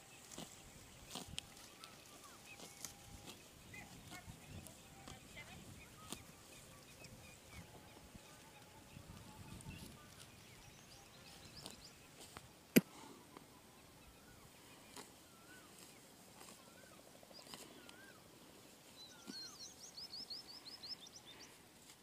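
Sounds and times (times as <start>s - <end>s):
bird chirps: 18.9s - 21.6s.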